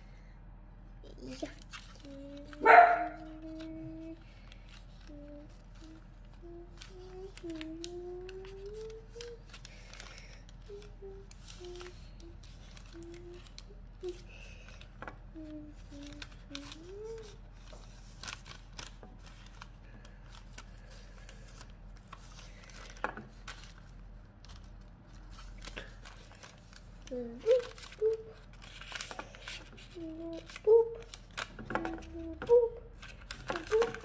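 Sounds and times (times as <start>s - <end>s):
person softly humming: 1.1s - 17.6s, 27.0s - 34.0s.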